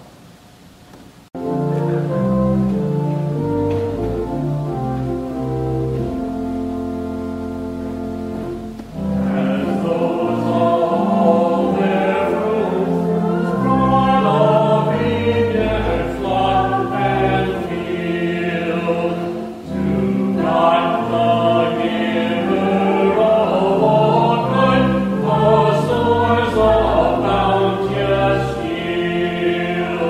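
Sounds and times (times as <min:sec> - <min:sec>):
pipe organ: 0:01.4 - 0:30.0
voices singing a hymn: 0:08.4 - 0:30.0.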